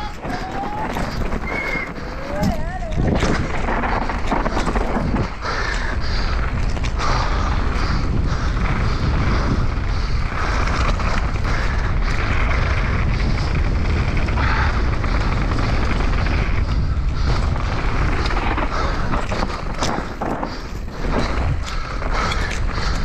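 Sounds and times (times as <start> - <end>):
bike knocking over rough ground: 0.0 - 5.4, 10.7 - 23.0
tyres rolling over dirt: 0.0 - 23.0
wind on microphone: 0.0 - 23.0.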